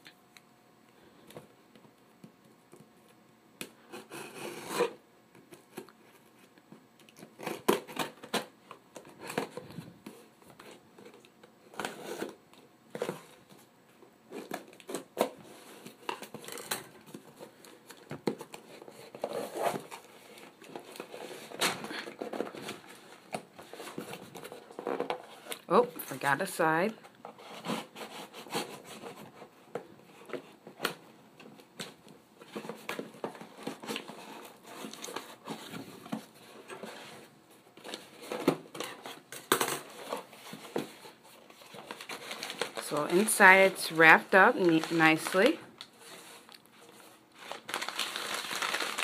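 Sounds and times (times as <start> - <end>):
packing tape being cut: 3.9 - 5.0, 7.2 - 8.5, 47.4 - 49.0.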